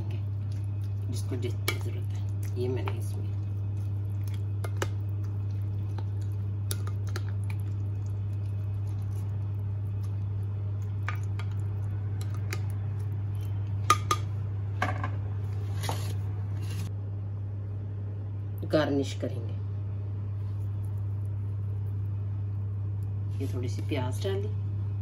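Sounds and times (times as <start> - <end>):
spatula stirring in bowl: 0.0 - 14.2
low hum: 0.0 - 25.0.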